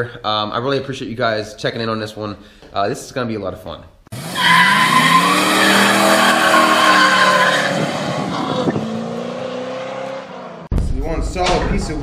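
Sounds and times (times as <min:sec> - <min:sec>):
tires squealing: 0:04.1 - 0:10.6
car engine revving high: 0:04.1 - 0:10.7.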